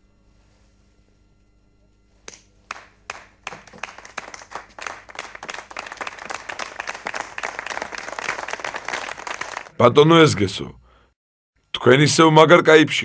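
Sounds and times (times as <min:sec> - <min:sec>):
group applauding: 0:02.3 - 0:09.8.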